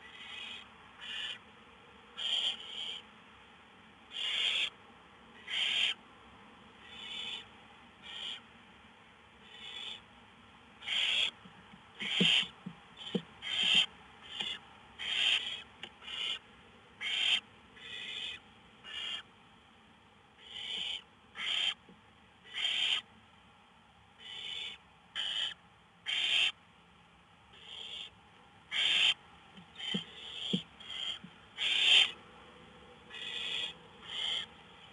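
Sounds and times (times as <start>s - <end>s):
owl nestlings hissing: 0.0s - 1.4s, 2.2s - 3.0s, 4.1s - 4.7s, 5.4s - 6.0s, 6.8s - 8.4s, 10.8s - 11.4s, 12.0s - 16.4s, 17.0s - 19.3s, 20.4s - 21.8s, 22.5s - 23.1s, 24.2s - 26.6s, 28.7s - 32.2s, 33.1s - 34.5s.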